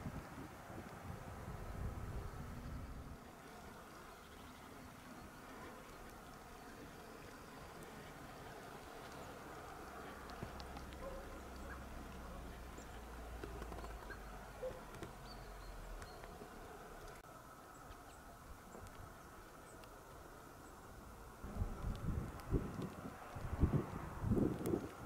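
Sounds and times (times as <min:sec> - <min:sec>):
wind rumble on microphone: 0:00.0 - 0:03.3, 0:21.0 - 0:25.0
faint clicks: 0:05.5 - 0:20.8, 0:21.6 - 0:25.0.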